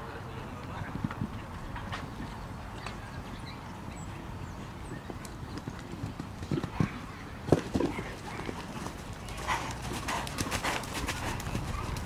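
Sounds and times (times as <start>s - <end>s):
horse hoofbeats on dirt: 4.9s - 12.0s.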